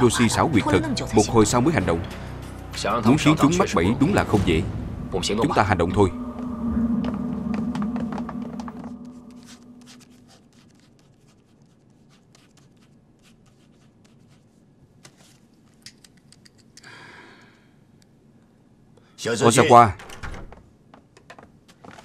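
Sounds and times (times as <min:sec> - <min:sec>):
low held tone: 0:03.5 - 0:10.2.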